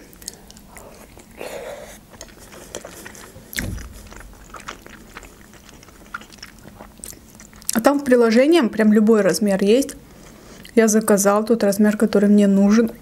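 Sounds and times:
person chewing dumpling: 0.0s - 7.8s
wet mouth clicks: 2.1s - 7.8s
dull thump: 3.6s - 5.0s.

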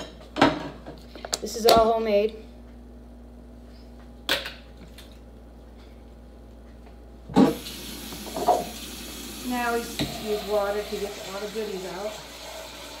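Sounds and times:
kitchen tap running: 7.4s - 13.0s.

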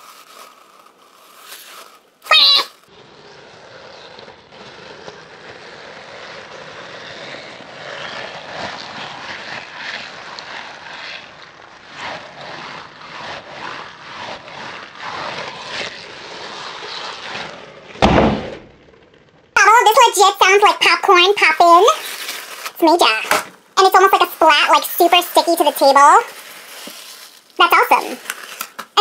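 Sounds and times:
squishy stress ball crunching: 0.0s - 19.9s, 20.8s - 29.0s
loud thump: 18.0s - 18.8s.

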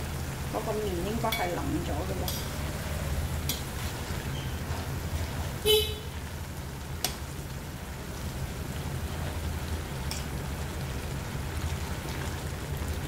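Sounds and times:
stove humming: 0.0s - 13.0s
spoon clinking on wok: 2.2s - 2.6s
horn toot: 5.6s - 6.2s.

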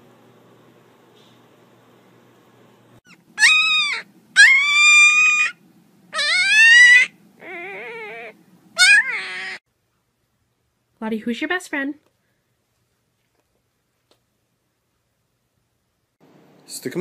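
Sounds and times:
puppy whining: 3.0s - 9.6s.

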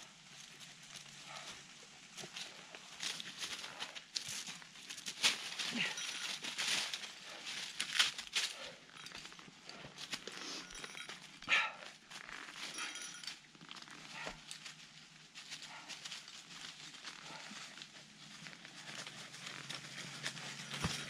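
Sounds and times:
dry leaves crunching: 3.0s - 8.7s.

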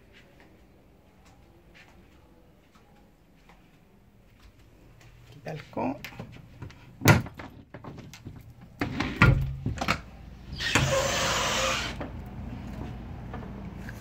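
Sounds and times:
outdoor hiss: 10.6s - 12.1s
sliding door rushing noise: 10.6s - 12.2s.

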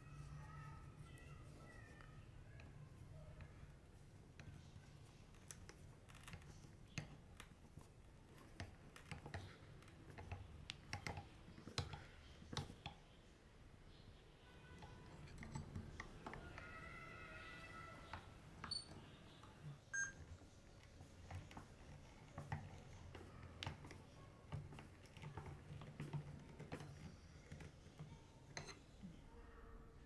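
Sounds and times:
screwdriver clicks and squeaks: 14.7s - 19.1s.

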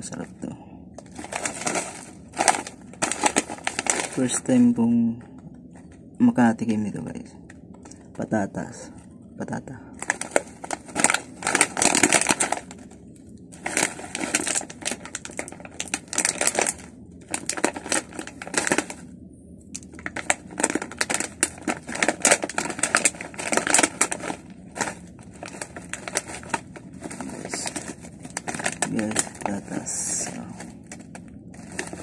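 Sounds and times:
foil snack bag crinkling: 1.0s - 4.9s, 10.0s - 19.1s, 19.8s - 32.0s.

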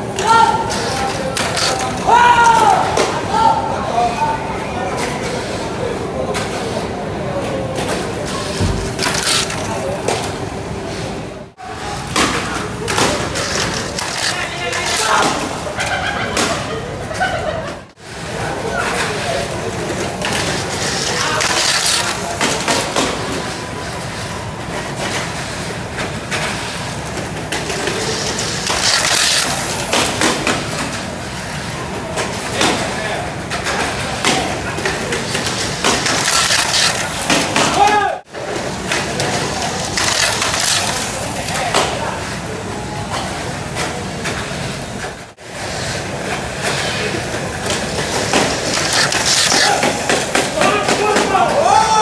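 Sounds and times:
toy cars clattering on plastic track: 0.2s - 2.1s, 11.8s - 16.5s, 18.8s - 23.6s, 24.8s - 31.6s, 32.2s - 42.0s, 45.6s - 51.4s.

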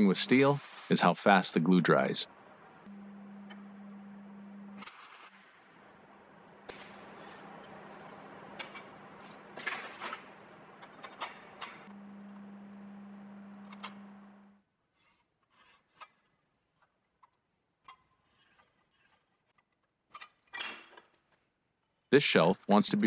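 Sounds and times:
electrical hum: 0.0s - 14.6s, 22.2s - 23.0s.

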